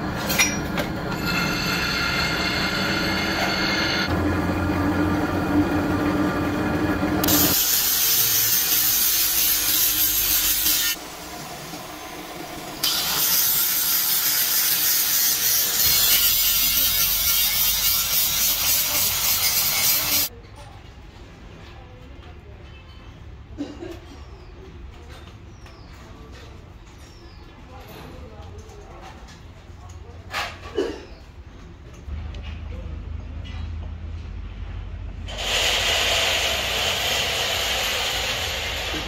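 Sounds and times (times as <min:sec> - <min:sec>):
angle grinder grinding metal: 0:00.4 - 0:04.1, 0:07.2 - 0:11.0, 0:12.8 - 0:20.3, 0:35.3 - 0:39.0.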